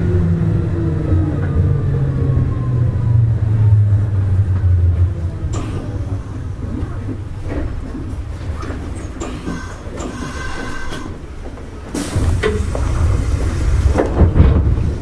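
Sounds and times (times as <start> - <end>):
train wheels rumbling on rails: 0.0 - 15.0
faint train motor tones: 9.2 - 11.2.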